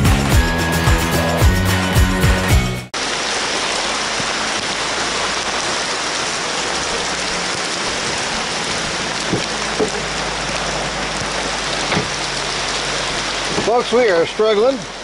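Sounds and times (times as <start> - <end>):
heavy rain on a car: 3.0 - 15.0.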